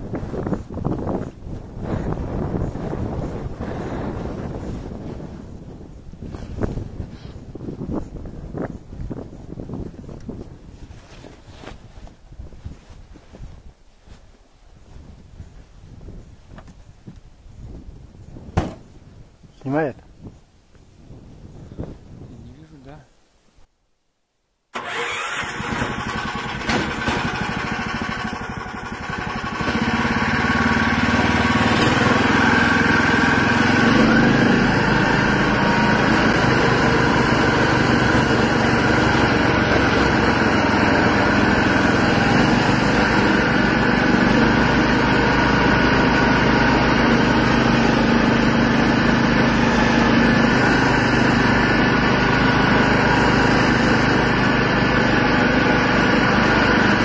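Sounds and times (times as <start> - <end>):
snowmobile engine running: 0.0 - 5.4, 24.8 - 57.0.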